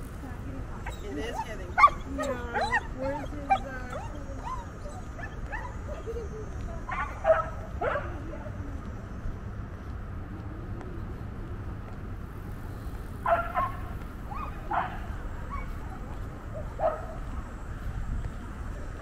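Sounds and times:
distant traffic: 0.0 - 19.0
wind: 0.0 - 19.0
dog barking: 1.8 - 3.7, 6.9 - 8.2, 13.2 - 15.8, 16.5 - 17.3.

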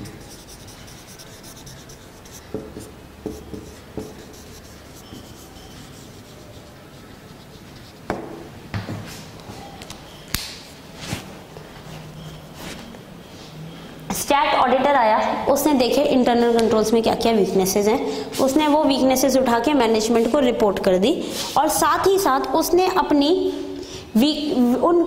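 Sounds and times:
marker rubbing on whiteboard: 0.0 - 8.4.

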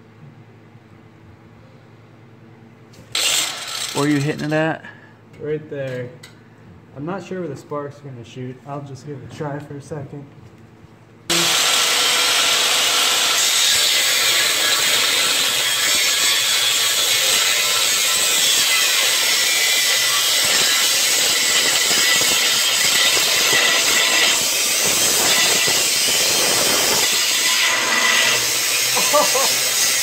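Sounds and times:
saw cutting steel pipe: 3.1 - 4.3, 11.3 - 30.0.

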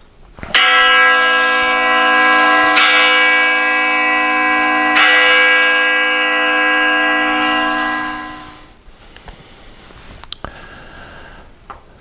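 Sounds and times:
bell ringing: 0.6 - 8.8.

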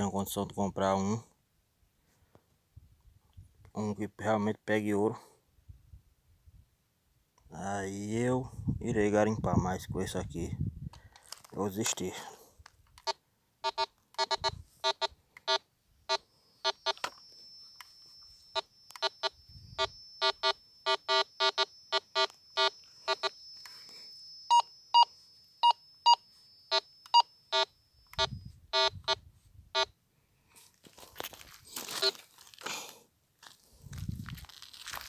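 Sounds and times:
metal detector beeping: 12.9 - 30.0, 31.2 - 32.3.

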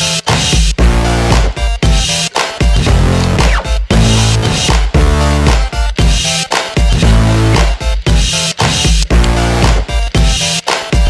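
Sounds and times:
music with strong bass line: 0.0 - 11.0.

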